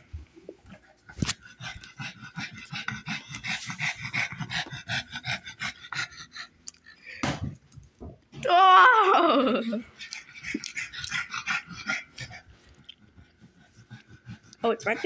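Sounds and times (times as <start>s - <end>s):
small dog panting: 0.6s - 6.9s, 9.9s - 15.0s.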